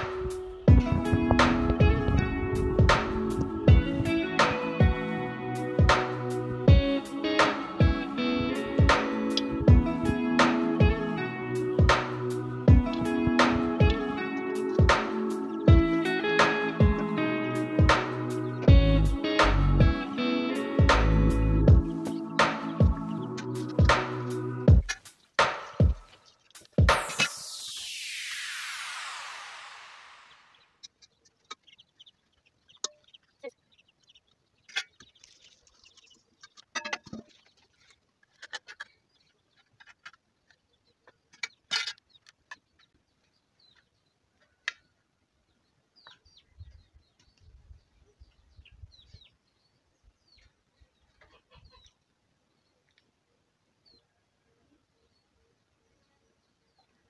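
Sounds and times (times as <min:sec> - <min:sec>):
background music: 0:00.0 - 0:26.1
birds chirping: 0:00.0 - 0:57.0.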